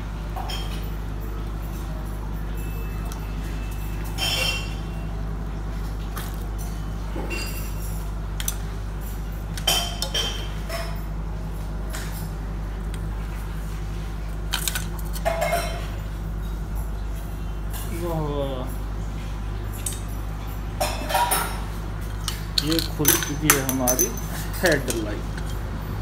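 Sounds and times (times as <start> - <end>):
light metallic clinks: 22.2 - 25.6.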